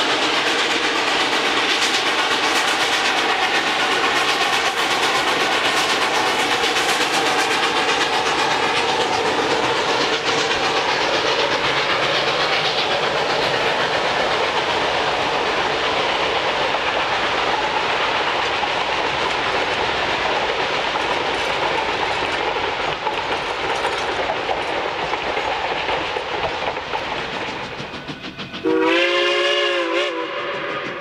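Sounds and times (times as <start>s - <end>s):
steam train rolling by: 0.0s - 31.0s
steam whistle blast: 28.6s - 31.0s.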